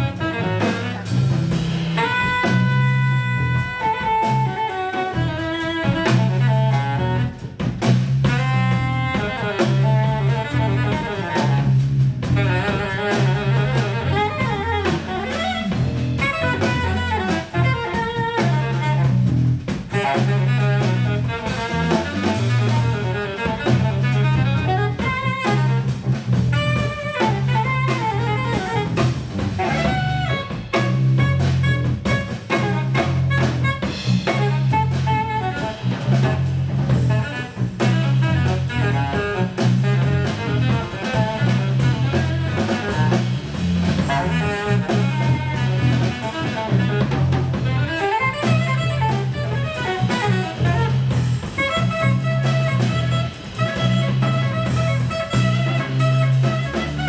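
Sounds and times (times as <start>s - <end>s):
jazz band playing: 0.0s - 57.0s
repeating bass figure: 0.0s - 57.0s
saxophone lines: 0.0s - 57.0s.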